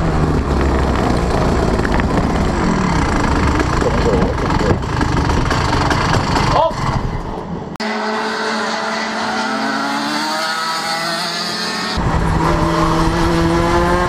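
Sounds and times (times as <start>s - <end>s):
wind rumble: 0.0s - 7.8s, 12.0s - 14.0s
racing kart engines: 0.0s - 14.0s.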